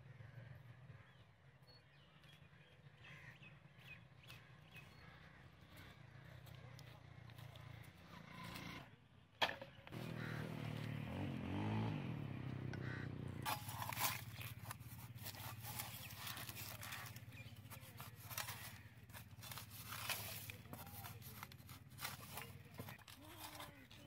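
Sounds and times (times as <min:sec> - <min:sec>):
metal blade scraping stony ground: 0:13.4 - 0:24.0.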